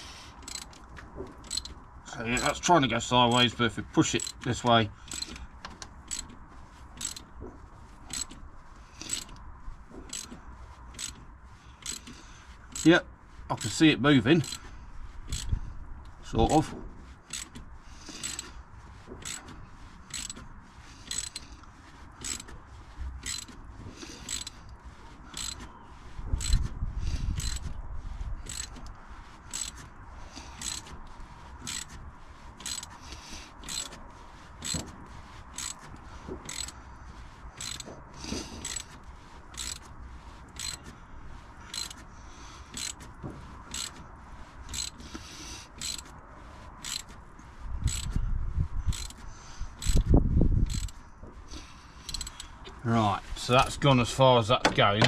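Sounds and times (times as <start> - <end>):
hand ratchet clicking: 0.0 - 1.8, 3.3 - 7.4, 8.0 - 12.9, 14.4 - 14.7, 15.3 - 16.6, 17.3 - 18.6, 19.2 - 22.6, 23.2 - 25.7, 26.4 - 27.8, 28.4 - 32.0, 32.6 - 34.0, 34.6 - 36.8, 37.6 - 39.9, 40.5 - 41.0, 41.6 - 42.1, 42.7 - 44.0, 44.7 - 46.2, 46.8 - 47.2, 47.8 - 48.2, 48.9 - 52.8.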